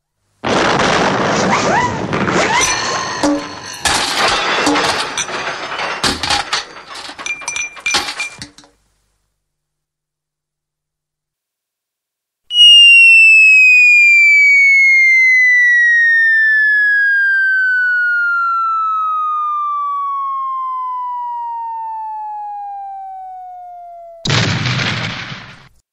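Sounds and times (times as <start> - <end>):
short explosion: 0.4 - 6.0, 24.3 - 25.7
falling bomb whistle: 12.5 - 24.6.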